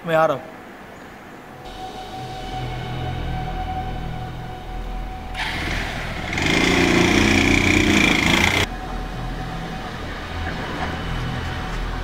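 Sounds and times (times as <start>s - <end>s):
motorbike engine starting and revving: 5.3s - 8.7s.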